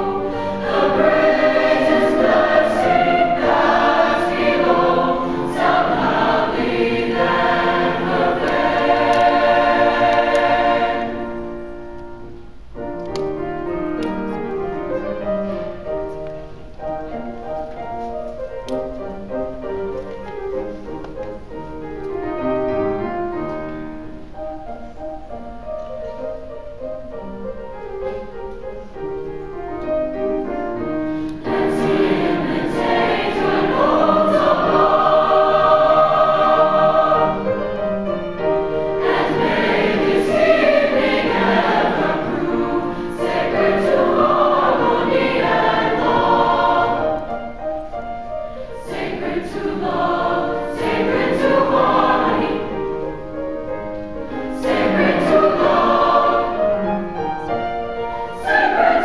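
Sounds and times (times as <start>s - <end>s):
choir singing: 0.0s - 11.9s, 30.3s - 59.0s.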